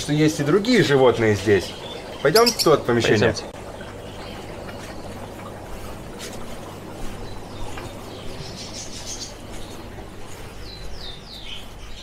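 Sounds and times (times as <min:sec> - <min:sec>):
caged birds chirping: 0:00.0 - 0:12.0
steady low hum: 0:00.0 - 0:12.0.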